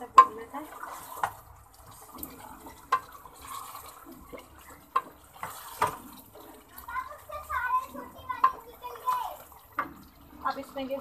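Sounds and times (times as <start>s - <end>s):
spoon knocking against pot: 0.0s - 0.5s
wooden spoon stirring sauce: 0.0s - 11.0s.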